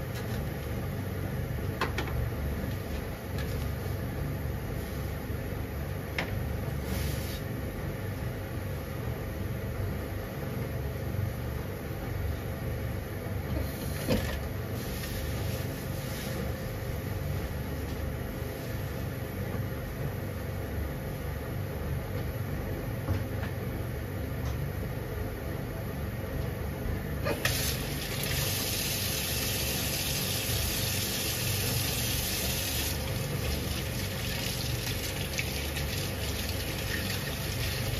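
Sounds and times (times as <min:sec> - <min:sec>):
gas burner rumbling: 0:27.0 - 0:37.9.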